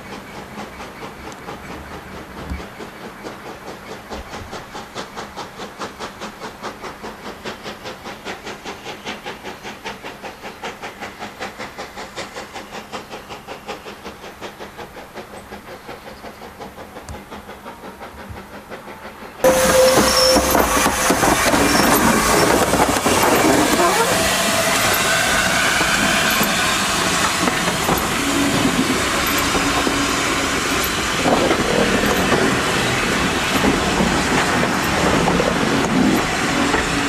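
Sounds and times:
steam locomotive exhaust beats: 0.0s - 37.0s
steam locomotive rolling over points: 0.0s - 37.0s
steady squeal: 19.4s - 37.0s.

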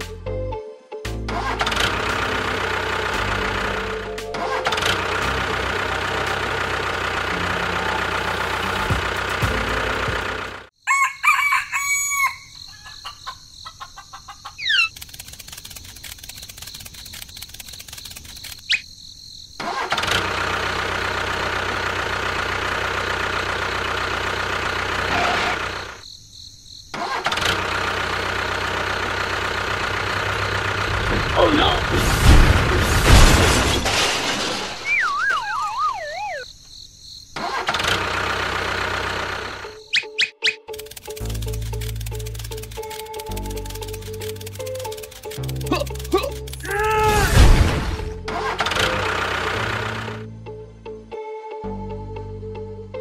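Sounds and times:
tractor engine running: 1.1s - 10.8s, 14.6s - 18.7s, 19.6s - 26.0s, 27.0s - 36.4s, 37.3s - 40.1s, 40.7s - 50.4s
rooster crowing: 10.8s - 14.7s.

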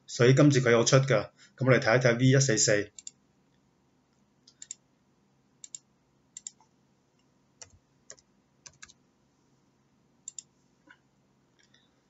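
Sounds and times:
computer mouse and keyboard clicks: 2.9s - 3.2s, 4.4s - 4.8s, 5.6s - 5.8s, 6.4s - 6.7s, 7.6s - 9.0s, 10.2s - 11.0s.

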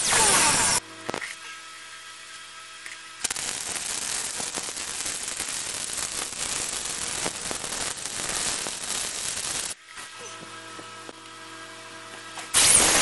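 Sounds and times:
welder arc crackling: 2.8s - 9.8s, 12.5s - 13.0s.

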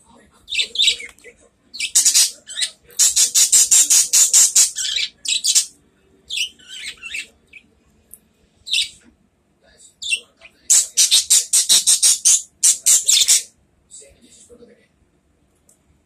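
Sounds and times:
budgerigars chirping and squawking: 0.4s - 5.7s, 6.3s - 7.7s, 8.7s - 9.0s, 10.0s - 13.5s.

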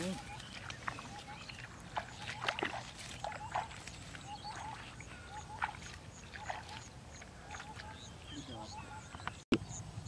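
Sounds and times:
shallow water sloshing and splashing: 0.0s - 8.1s.

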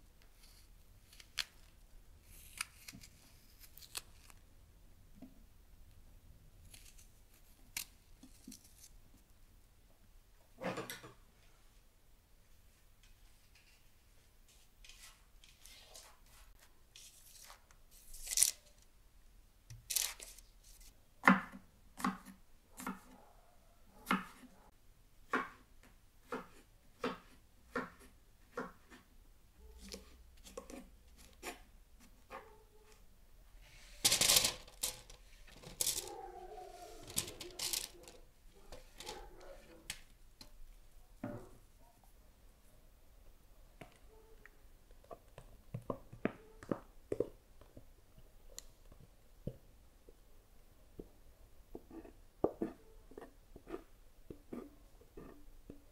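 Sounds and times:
food handling noise: 33.7s - 40.6s.

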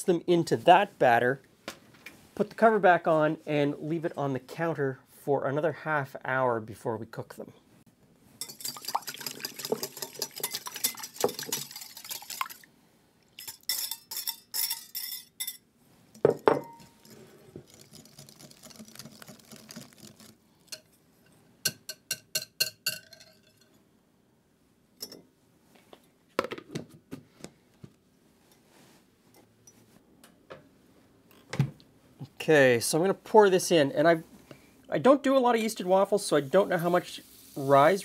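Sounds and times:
whisk clattering against glass bowl: 8.4s - 12.5s.

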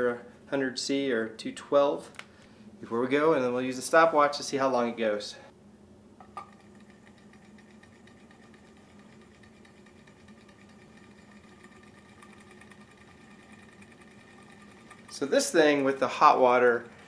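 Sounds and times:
engine flywheel whirring and ticking: 6.6s - 17.0s.

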